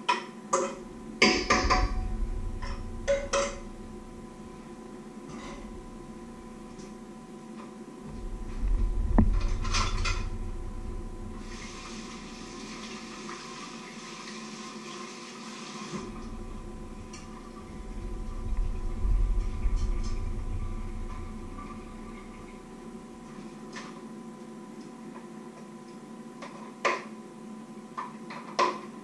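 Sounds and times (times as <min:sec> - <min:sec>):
rumbling handling noise: 0:00.7 - 0:12.9, 0:16.0 - 0:24.3
water running from tap: 0:11.4 - 0:18.0.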